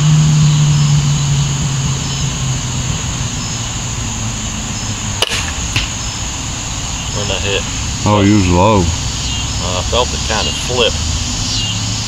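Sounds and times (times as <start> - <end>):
passing engine drone: 0.0 - 12.0
steady high hiss: 0.5 - 12.0
sharp click: 5.2 - 6.0.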